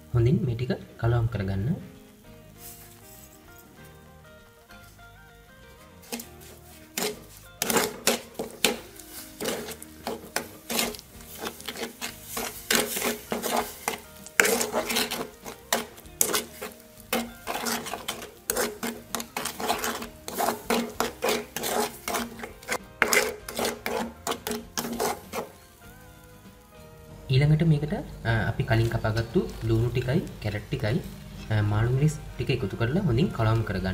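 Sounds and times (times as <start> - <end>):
ladle scraping clay pot: 6.0 - 25.6.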